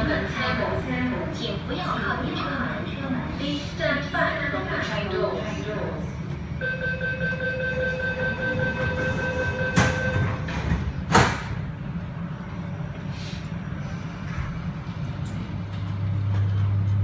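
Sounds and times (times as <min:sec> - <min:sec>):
low hum of stopped train: 0:00.0 - 0:17.0
sliding train doors shutting: 0:08.5 - 0:17.0.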